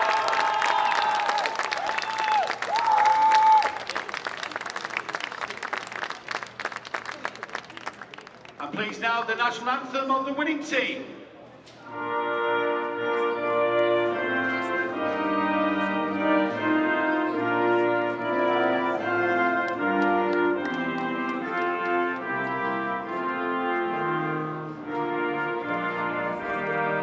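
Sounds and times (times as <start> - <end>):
orchestra playing anthem with brass: 11.8 - 27.0.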